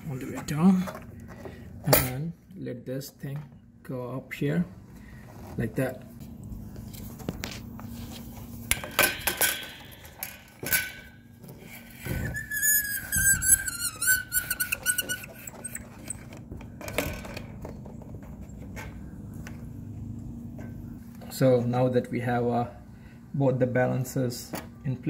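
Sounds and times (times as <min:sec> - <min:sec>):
thin high squeal: 0:12.1 - 0:16.2.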